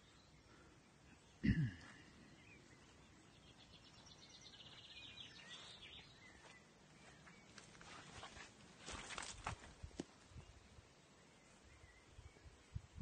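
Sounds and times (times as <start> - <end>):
bird chirps: 0.0 - 8.0
soft rustling: 5.5 - 10.3.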